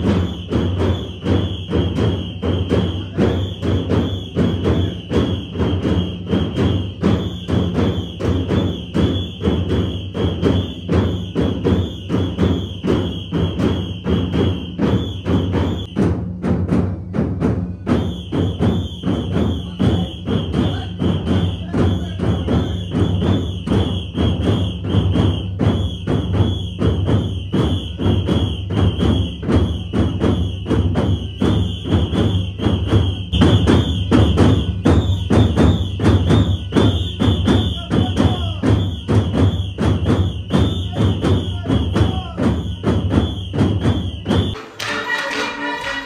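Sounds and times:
fast drumming: 0:00.0 - 0:46.0
high steady tone: 0:44.6 - 0:46.0.

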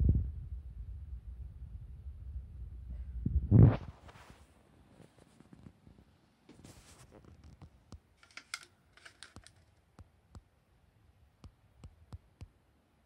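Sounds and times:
camera handling rustles: 0:08.2 - 0:09.8.

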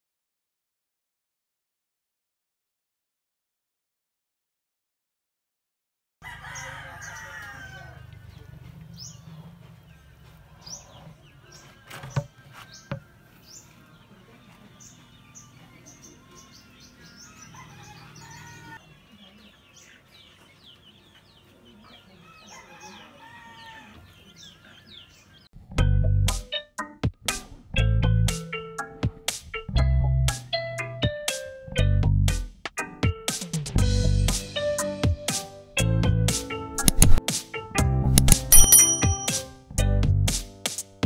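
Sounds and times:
chickens crowing and clucking: 0:06.2 - 0:25.5
small birds chirping: 0:06.3 - 0:25.5.

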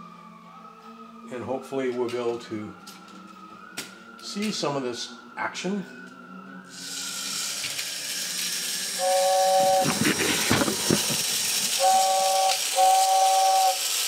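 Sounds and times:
two-tone whistle toots: 0:06.7 - 0:14.0
fan air hiss: 0:06.8 - 0:14.0.

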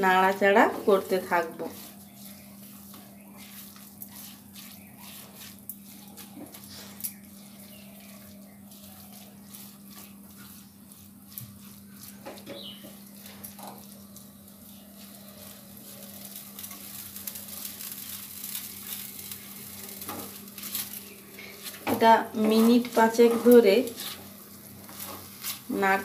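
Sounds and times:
spatula scraping pan: 0:00.0 - 0:26.0.

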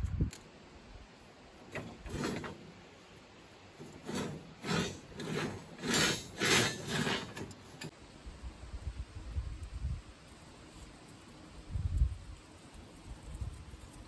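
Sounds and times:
steel rebar scraping on concrete: 0:01.7 - 0:07.9.

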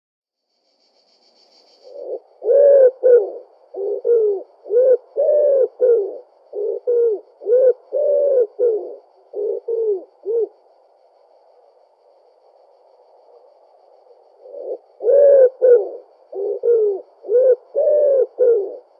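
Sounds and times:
wood pigeon cooing: 0:01.9 - 0:10.6, 0:14.1 - 0:18.9.

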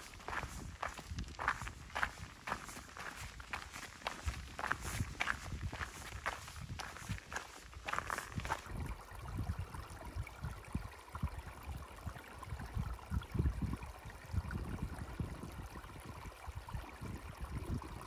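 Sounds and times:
footsteps on stony trail: 0:00.0 - 0:08.7
wind buffeting microphone: 0:00.0 - 0:11.8, 0:12.5 - 0:18.0
faint stream trickling: 0:00.0 - 0:18.0.

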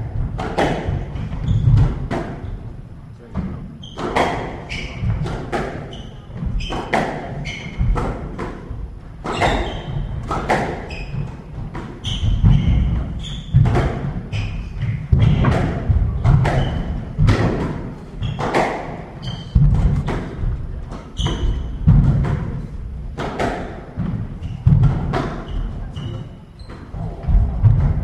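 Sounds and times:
squash ball cracking off rackets: 0:00.4 - 0:02.4, 0:14.9 - 0:22.6
shoes squeaking on wooden floor: 0:00.9 - 0:02.7, 0:03.6 - 0:08.4, 0:09.2 - 0:22.7, 0:24.0 - 0:28.0.

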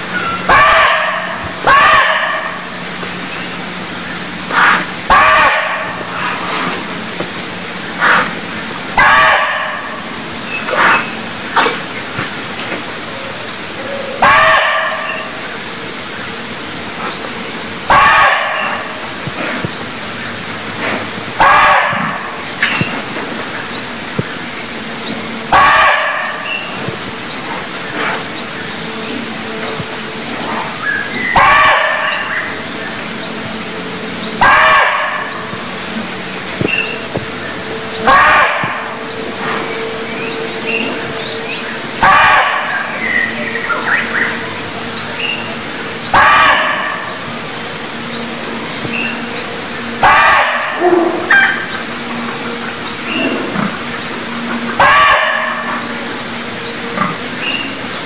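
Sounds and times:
deer barking: 0:00.5 - 0:02.7, 0:04.6 - 0:06.0, 0:09.0 - 0:10.0, 0:13.9 - 0:15.3, 0:17.9 - 0:19.0, 0:21.4 - 0:22.4, 0:25.5 - 0:26.5, 0:31.2 - 0:32.6, 0:34.4 - 0:35.5, 0:38.0 - 0:39.0, 0:42.0 - 0:43.3, 0:46.1 - 0:47.3, 0:49.9 - 0:51.7, 0:54.7 - 0:56.0.

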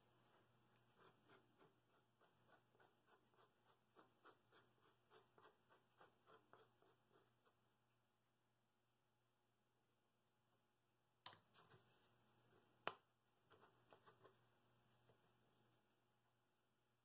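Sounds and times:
fingertip scratching wooden bowl: 0:00.3 - 0:07.7, 0:13.5 - 0:14.4.

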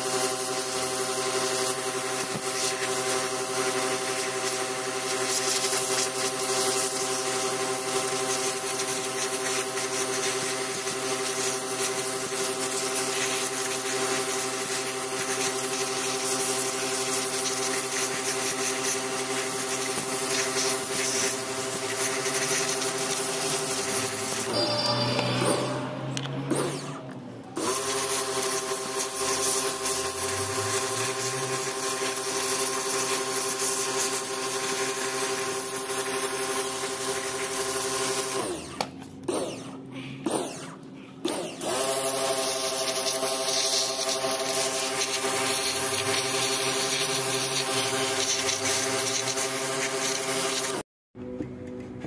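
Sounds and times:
pressure washer motor whine: 0:00.0 - 0:52.0
water jet hissing: 0:00.2 - 0:25.8, 0:27.6 - 0:37.9.

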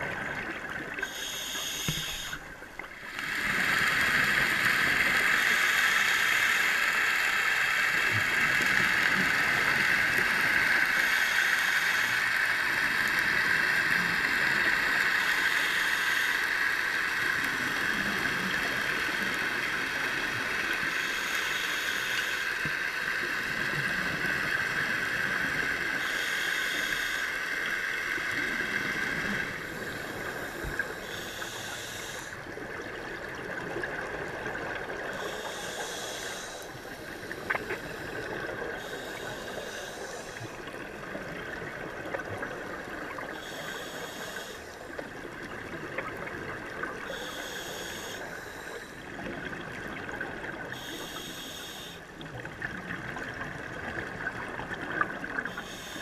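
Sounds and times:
exhaled bubbles burbling underwater: 0:00.0 - 0:01.1, 0:32.4 - 0:35.2, 0:40.4 - 0:43.4, 0:44.9 - 0:47.2, 0:49.0 - 0:50.9, 0:52.1 - 0:55.6
steady high-pitched whine: 0:00.0 - 0:33.3.

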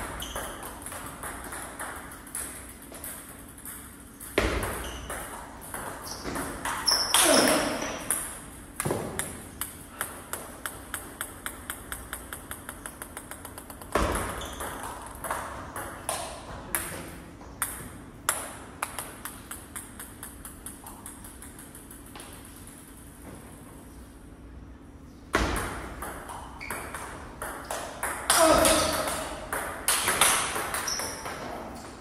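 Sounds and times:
ball bouncing on table: 0:00.0 - 0:22.5
table tennis ball taps: 0:08.1 - 0:17.0.

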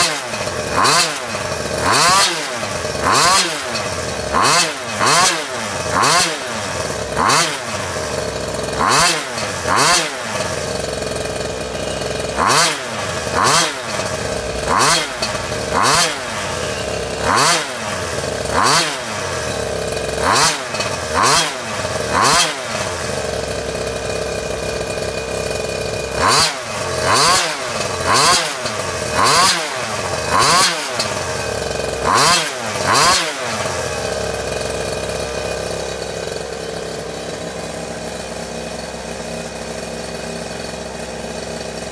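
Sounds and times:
two-stroke engine revving: 0:00.0 - 0:41.9.

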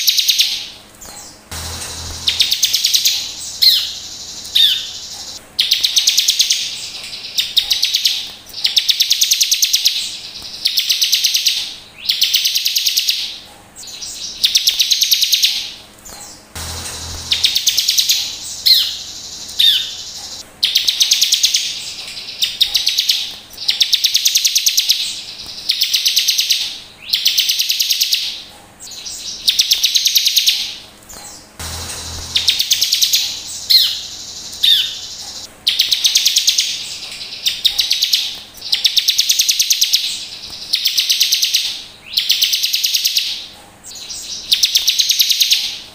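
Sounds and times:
bird buzzy trills: 0:00.0 - 0:45.8
bird chip notes: 0:01.1 - 0:06.1, 0:16.6 - 0:21.5, 0:31.6 - 0:36.2.

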